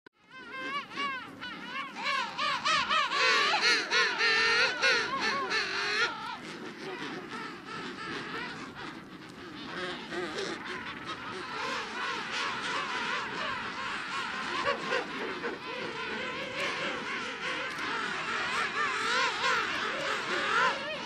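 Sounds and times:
penguins calling: 0.4s - 21.0s.

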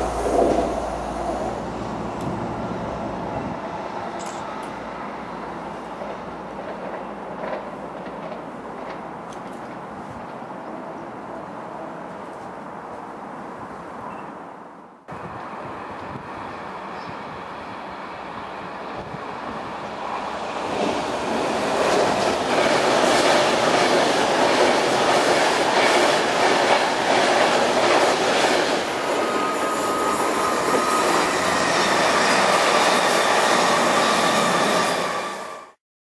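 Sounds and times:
train passing at speed: 0.0s - 35.8s
steady high tone: 28.8s - 35.7s.

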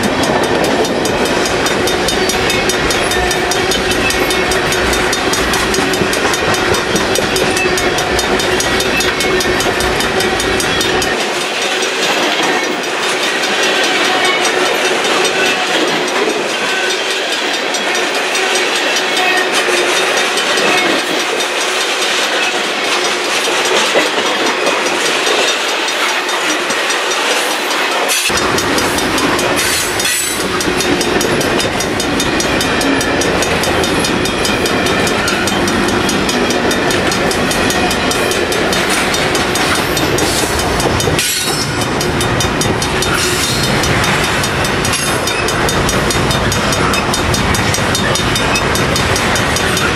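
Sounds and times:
freight train wheels rumbling: 0.0s - 49.9s.

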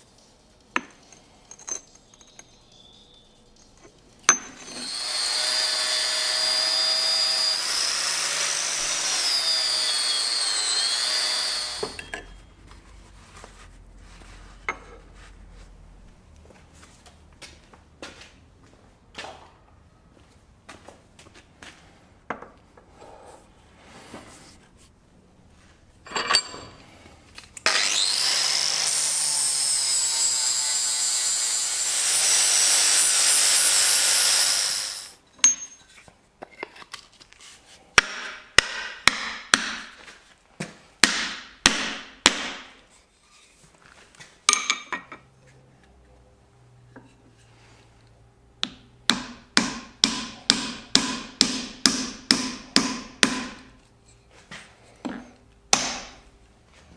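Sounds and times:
hammer striking wooden handle: 4.3s - 4.8s, 38.0s - 39.9s, 41.0s - 42.7s, 48.6s - 53.7s, 55.7s - 56.2s
power tool running: 4.6s - 12.1s, 27.6s - 35.2s.

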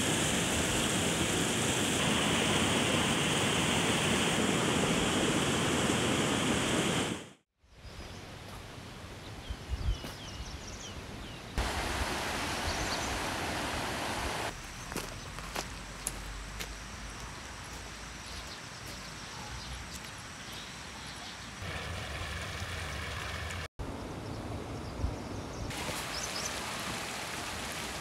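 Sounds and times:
birds chirping: 12.4s - 21.6s.

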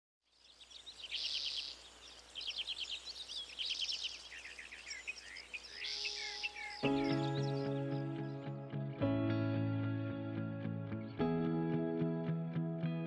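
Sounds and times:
songbirds chirping: 0.2s - 9.0s.

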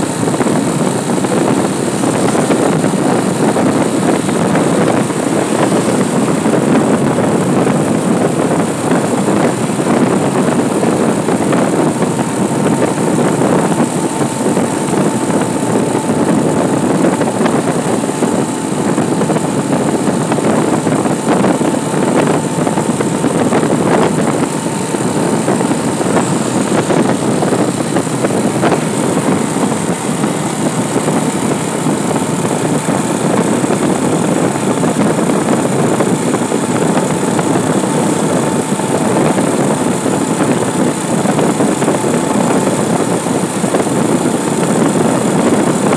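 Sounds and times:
motorcycle engine and road noise: 0.0s - 45.9s
wind rush on microphone: 0.0s - 45.9s.

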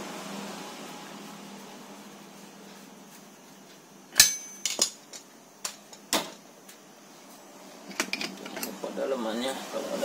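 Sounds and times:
sharp clack with metallic ring: 4.2s - 5.0s.

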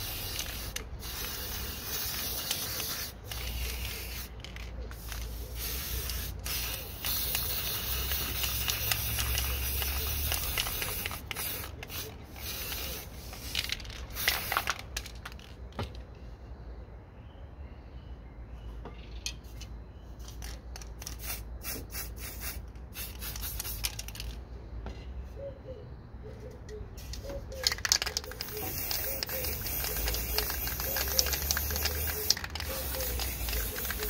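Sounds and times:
spray paint can spraying: 0.0s - 15.5s, 20.2s - 24.4s, 27.0s - 34.0s.

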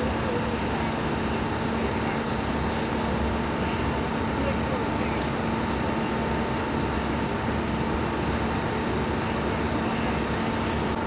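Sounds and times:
steady engine drone: 0.0s - 11.0s.

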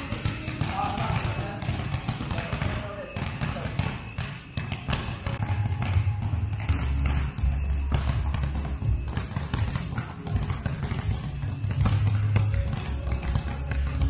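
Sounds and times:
basketballs dribbled on gym floor: 0.0s - 14.0s
background music with bass notes: 5.4s - 14.0s.

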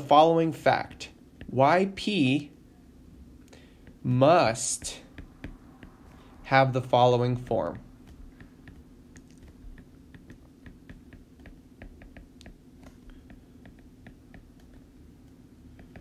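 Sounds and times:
steady low hum: 0.0s - 16.0s
stylus tapping on tablet screen: 3.6s - 6.4s, 7.4s - 16.0s.

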